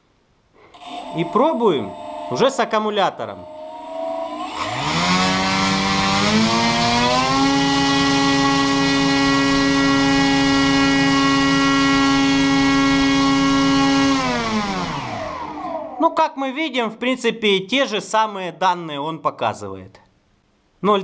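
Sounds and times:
rc motor propeller whine: 0.7s - 16.0s.

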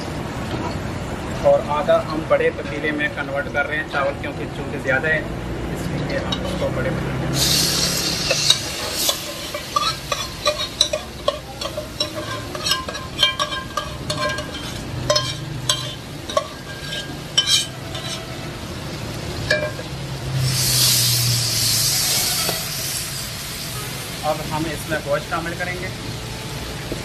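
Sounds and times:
oily mixture sizzling: 5.8s - 27.0s
metal ladle scraping pot: 6.1s - 6.7s, 7.4s - 18.4s.

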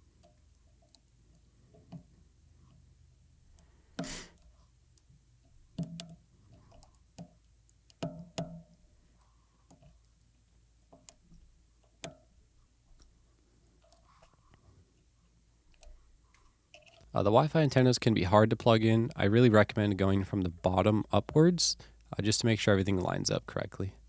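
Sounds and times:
tool tapping circuit board: 5.8s - 6.2s, 7.2s - 8.8s.

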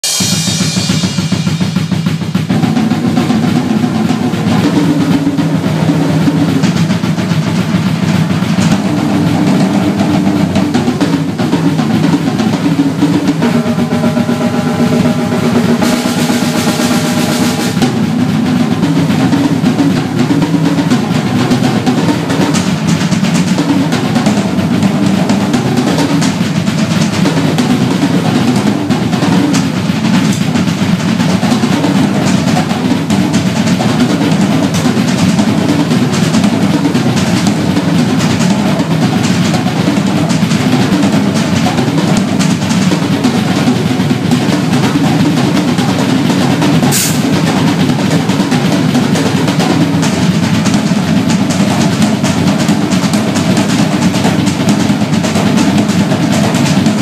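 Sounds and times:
cymbal ringing: 0.0s - 2.5s, 8.8s - 20.2s
drum kit rolls: 0.0s - 57.0s.

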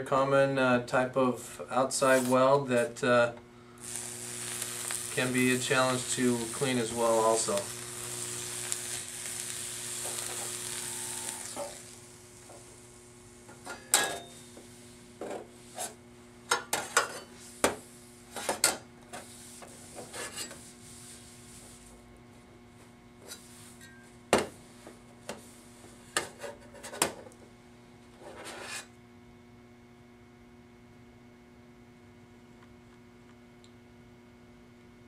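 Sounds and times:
low steady hum: 0.0s - 26.2s
weld cleaner wand sizzling: 3.8s - 15.8s.

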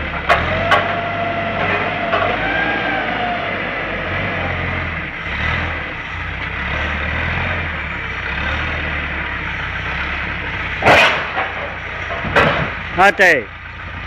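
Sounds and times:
forklift engine running: 0.0s - 14.0s
loud bang: 10.8s - 12.8s.

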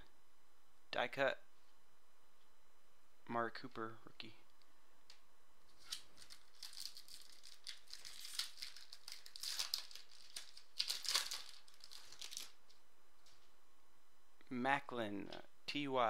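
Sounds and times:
foil wrapper crinkling: 5.7s - 12.8s.

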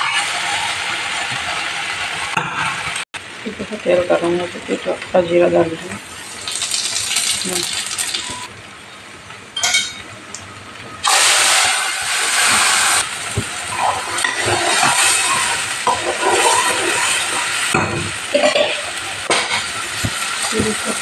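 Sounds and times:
seeds sizzling in hot oil: 6.1s - 8.5s, 11.0s - 21.0s.

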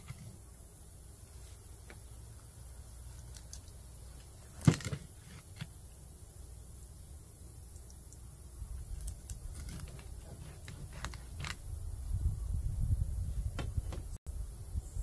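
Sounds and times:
dull thumps: 13.5s - 14.2s.

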